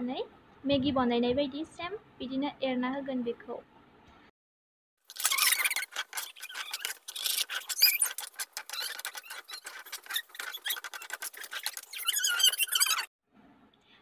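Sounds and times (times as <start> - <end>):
short squeaks: 5.1 - 13.1.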